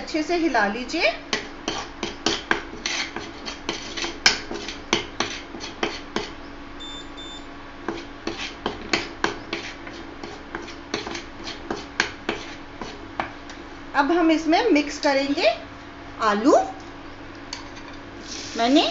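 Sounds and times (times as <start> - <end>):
steady low hum: 0.0 - 18.9
spoon scraping metal pan: 1.7 - 6.3
short beeps: 6.8 - 7.5.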